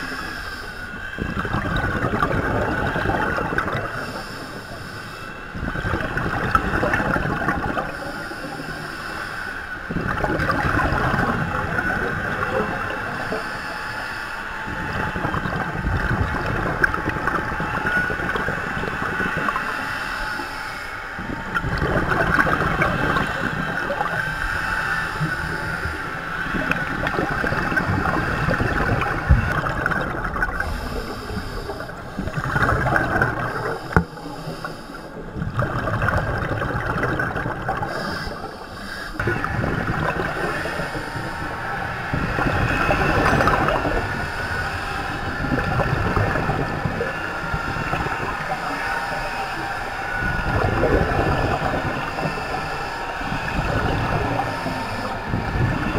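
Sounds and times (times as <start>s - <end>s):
scuba regulator hiss: 0.0s - 0.9s, 4.0s - 5.3s, 7.9s - 9.6s, 13.1s - 14.5s, 30.6s - 32.0s, 33.4s - 35.2s, 37.8s - 39.2s
bubbling exhalation underwater: 1.2s - 4.0s, 5.8s - 7.9s, 10.0s - 13.1s, 21.5s - 24.2s, 26.6s - 34.1s, 35.3s - 38.5s, 39.2s - 41.1s, 42.1s - 44.2s, 50.3s - 52.6s.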